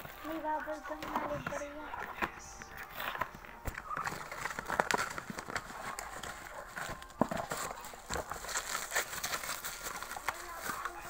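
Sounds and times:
bubble wrap crinkling: 0:00.0 - 0:11.0.

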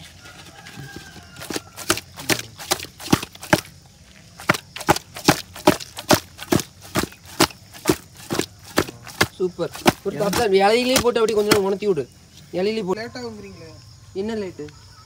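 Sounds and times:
fish slapping in steel bowl: 0:01.4 - 0:03.7, 0:04.4 - 0:11.8.

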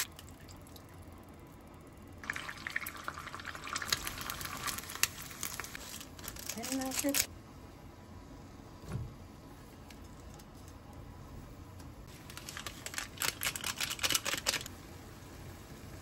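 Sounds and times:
foil sachet crinkling: 0:03.6 - 0:07.3, 0:12.1 - 0:14.7.

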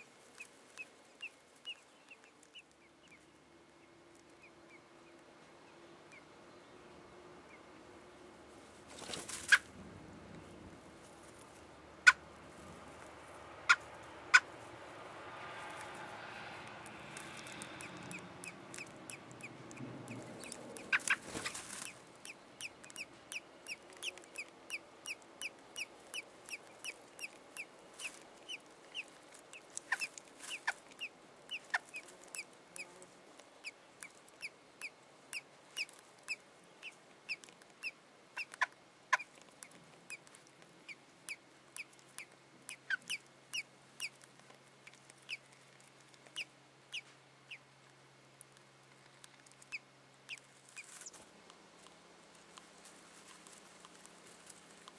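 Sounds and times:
robin chirping: 0:00.0 - 0:03.3, 0:17.2 - 0:33.0, 0:40.8 - 0:44.2
rustling: 0:08.5 - 0:17.8, 0:19.7 - 0:22.2, 0:50.4 - 0:54.9.

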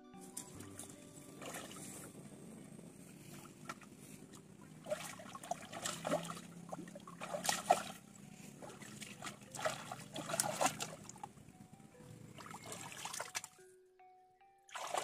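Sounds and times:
hands splashing in shallow water: 0:04.8 - 0:06.5, 0:07.1 - 0:08.0, 0:08.6 - 0:11.0.

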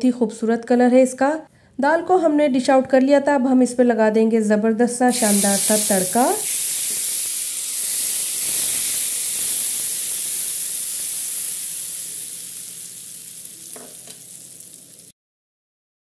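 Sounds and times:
hot oil sizzling: 0:05.1 - 0:15.1.

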